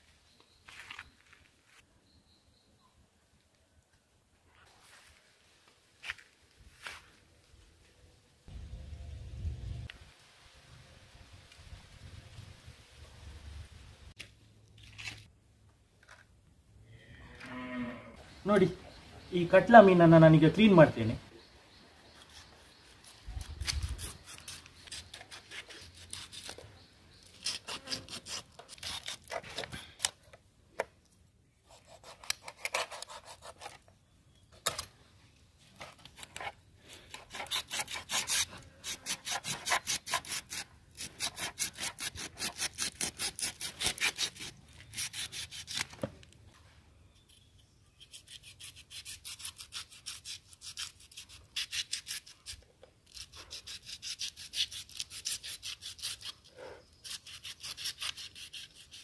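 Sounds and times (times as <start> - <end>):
knife scraping fish scales: 22.2 - 26.7, 27.3 - 30.1, 35.8 - 46.0, 47.3 - 59.0.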